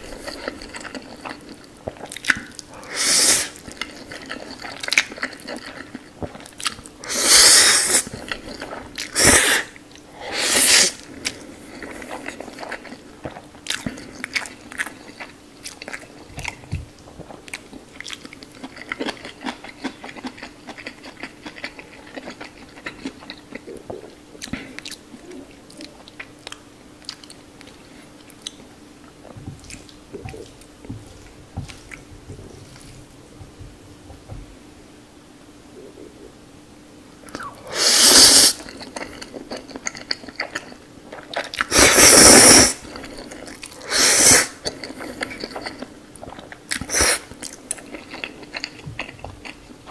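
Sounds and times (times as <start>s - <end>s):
chewing with wet smacks: 0.0s - 2.8s, 3.6s - 7.0s, 11.1s - 34.4s, 38.6s - 41.7s, 42.8s - 43.8s, 44.6s - 49.9s
person slurping noodles: 2.8s - 3.7s, 7.0s - 11.0s, 37.4s - 38.6s, 41.7s - 42.8s, 43.8s - 44.6s, 46.9s - 47.3s.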